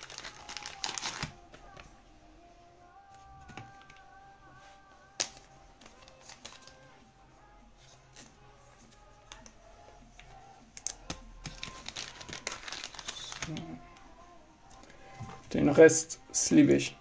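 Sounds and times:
faint background music: 0.0 - 17.0.

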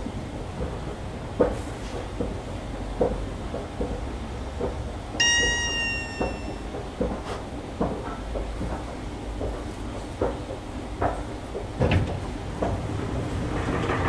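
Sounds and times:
elevator drive rumble: 0.0 - 14.0
elevator arrival chime ding: 5.2 - 7.0.

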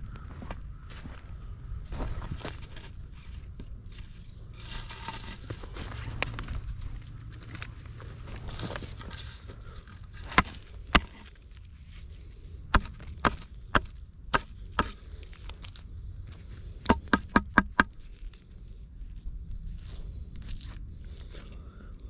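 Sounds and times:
low outdoor rumble: 0.0 - 22.0
sharp knocks: 16.9 - 17.9.

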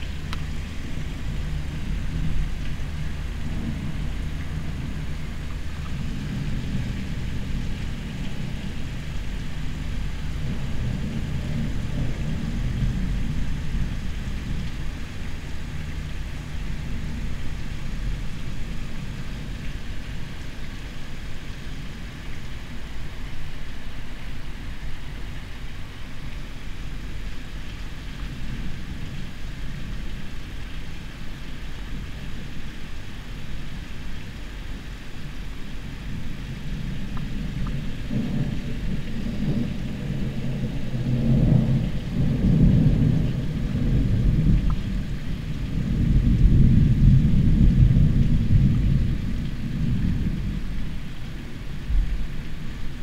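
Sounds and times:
distant thunder rumbling: 0.0 - 20.1, 36.1 - 51.1.

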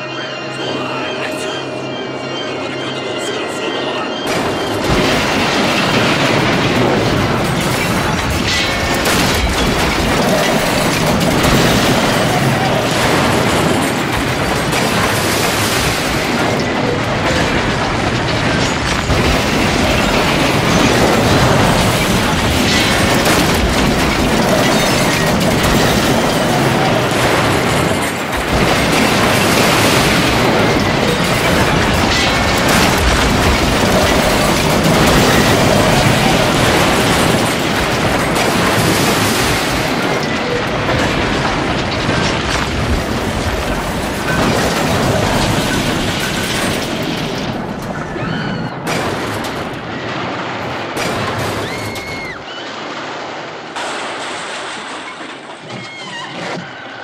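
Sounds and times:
high cries or squeals: 0.0 - 6.0, 48.0 - 48.8, 51.5 - 52.9, 55.1 - 57.0
crash of breaking masonry: 4.3 - 52.5, 53.7 - 56.0.

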